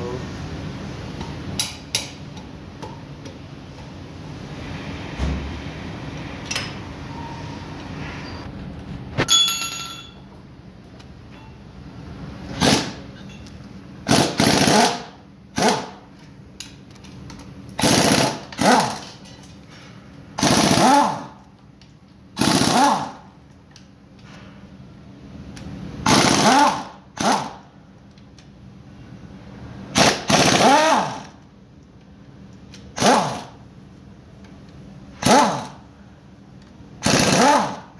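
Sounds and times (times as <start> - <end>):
air wrench bursts: 12.5 - 13.0, 14.0 - 15.9, 17.8 - 19.0, 20.4 - 21.3, 22.4 - 23.2, 26.0 - 27.6, 29.9 - 31.3, 32.9 - 33.5, 35.2 - 35.8, 37.0 - 37.8.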